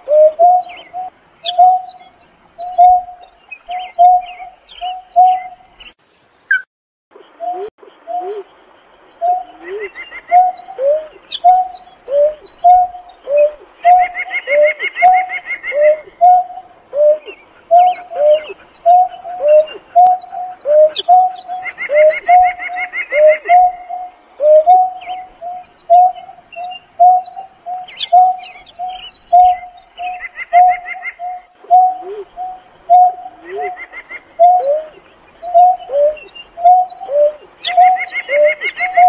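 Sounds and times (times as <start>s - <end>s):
bird low hooting notes: 0.0s - 5.8s, 9.2s - 39.0s.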